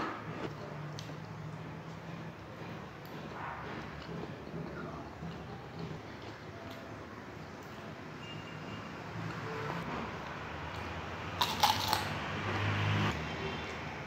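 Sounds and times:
close chewing: 0.3s - 7.8s.

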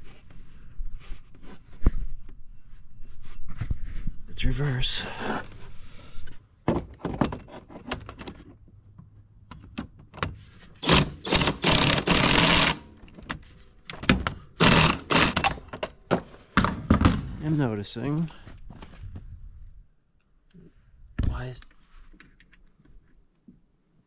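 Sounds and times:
impact wrench hammering: 10.8s - 12.9s, 14.0s - 15.7s.

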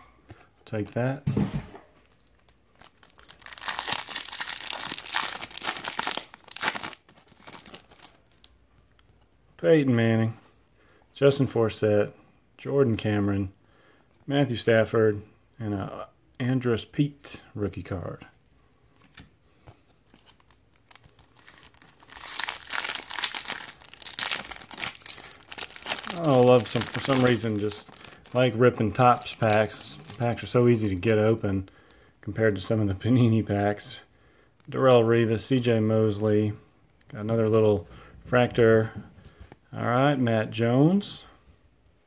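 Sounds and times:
foil pack tearing and crinkling: 2.8s - 8.2s, 20.4s - 28.4s.

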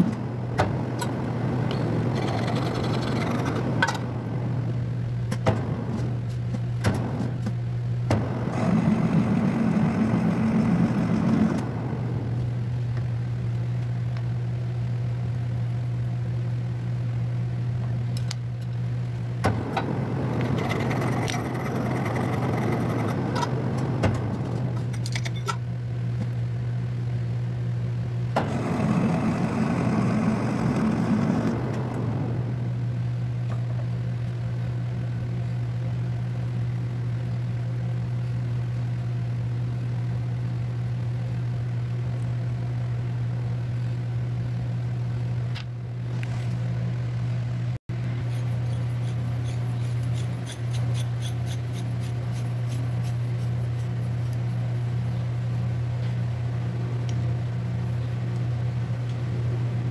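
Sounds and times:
metal lathe humming: 48.0s - 54.8s
rough scraping: 48.2s - 54.6s.

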